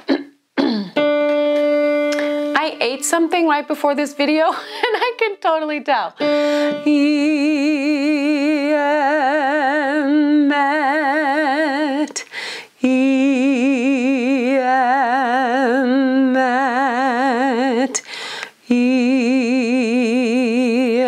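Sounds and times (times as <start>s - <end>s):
woman singing vocal exercise: 6.1s - 21.0s
singer breathing in: 6.2s - 6.8s, 12.3s - 12.8s, 18.0s - 18.6s.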